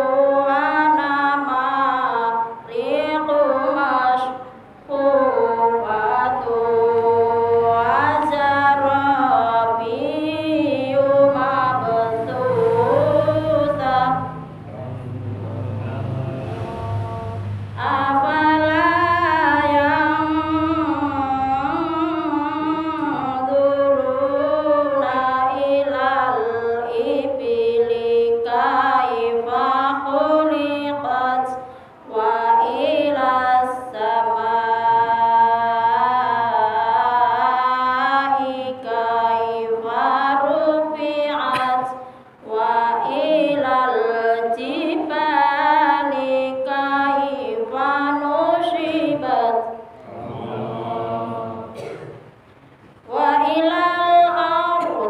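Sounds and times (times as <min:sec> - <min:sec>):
woman chanting recitation: 0:00.0 - 0:52.0, 0:53.0 - 0:55.0.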